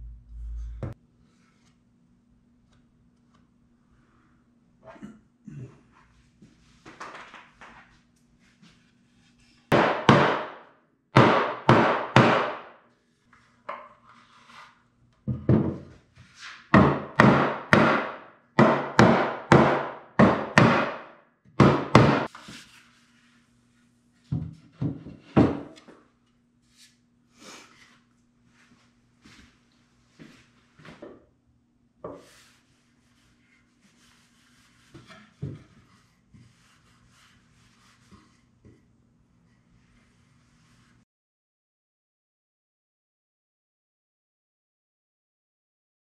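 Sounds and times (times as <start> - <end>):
mallet knocking wood: 9.7 - 10.6, 16.8 - 22.3.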